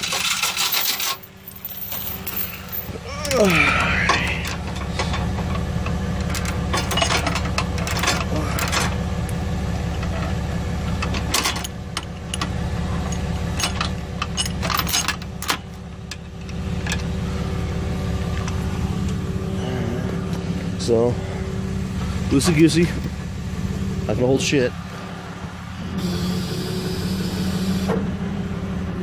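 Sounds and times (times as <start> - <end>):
metal chain clinking and rattling: 0.0 - 3.6, 4.2 - 10.4, 13.0 - 15.6
truck engine idling: 0.7 - 29.0.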